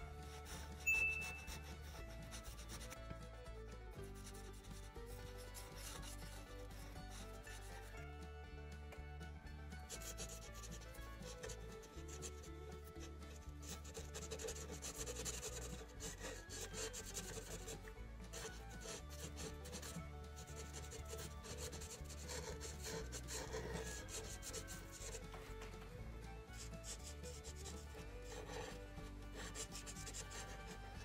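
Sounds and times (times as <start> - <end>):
marker rubbing on paper: 0.2 - 3.0, 4.2 - 7.7, 9.9 - 11.6, 12.2 - 12.4, 13.0 - 25.2, 26.5 - 30.9.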